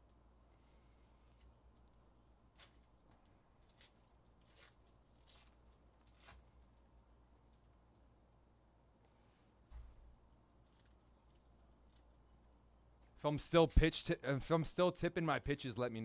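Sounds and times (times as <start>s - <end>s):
foil wrapper crinkling and tearing: 1.4s - 6.9s.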